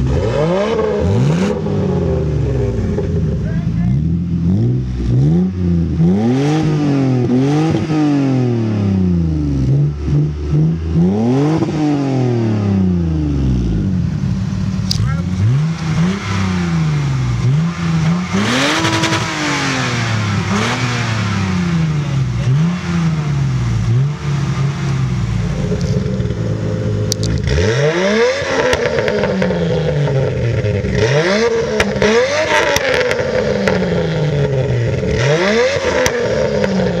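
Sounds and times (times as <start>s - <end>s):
car engines revving: 0.0s - 37.0s
exhaust pops and crackles: 14.8s - 16.2s, 25.4s - 27.6s, 28.4s - 35.2s, 35.8s - 37.0s.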